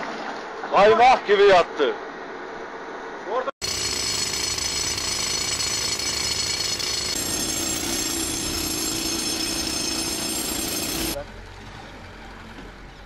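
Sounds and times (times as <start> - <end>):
pneumatic rock drill hammering stone: 3.6 - 11.2.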